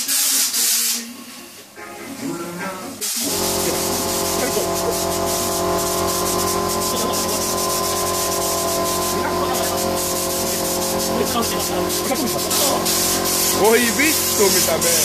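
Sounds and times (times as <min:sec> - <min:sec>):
mechanical hum: 0:03.0 - 0:15.0
spray gun hissing: 0:03.0 - 0:15.0.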